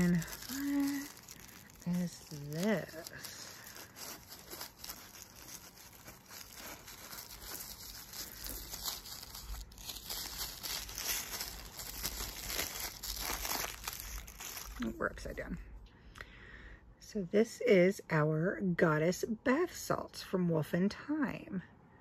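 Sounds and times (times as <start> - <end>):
paper crinkling and rustling: 0.0 - 15.4.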